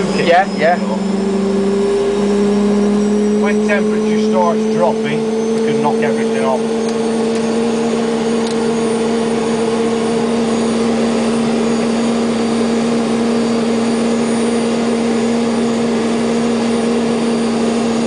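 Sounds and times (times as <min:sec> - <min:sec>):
helicopter turbine engine running: 0:00.0 - 0:18.0.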